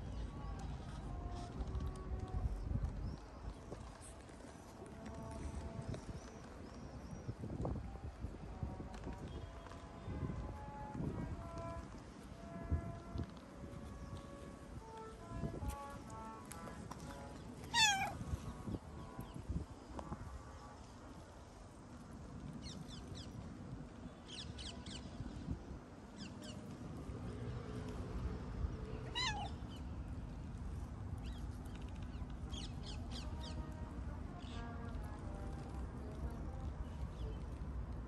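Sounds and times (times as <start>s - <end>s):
cat meowing loudly: 17.7s - 18.2s, 29.0s - 29.6s.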